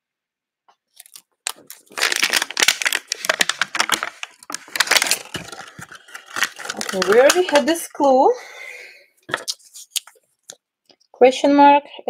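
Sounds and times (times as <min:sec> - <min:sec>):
plastic crackling and crinkling: 0:00.8 - 0:08.1
plastic wrapping tearing: 0:00.9 - 0:07.9.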